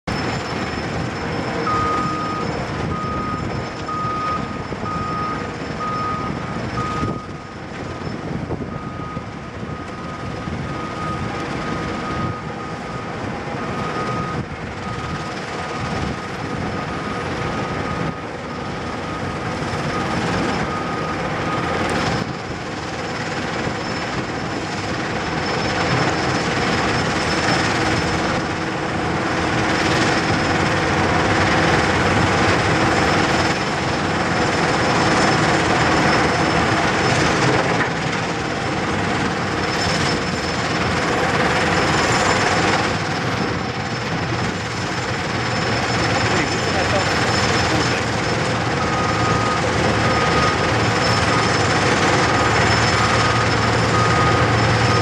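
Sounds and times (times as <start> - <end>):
excavator diesel engine: 0.0 - 55.0
backup alarm beeping: 0.1 - 7.4, 8.7 - 16.2, 45.7 - 55.0.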